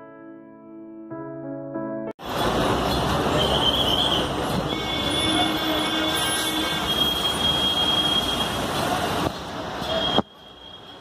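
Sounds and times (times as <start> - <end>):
bus engines running: 2.2 - 11.0.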